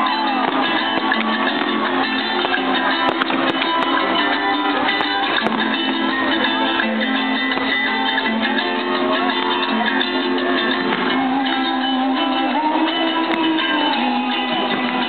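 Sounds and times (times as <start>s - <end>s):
guitar music: 0.0s - 15.0s
held notes: 0.0s - 15.0s.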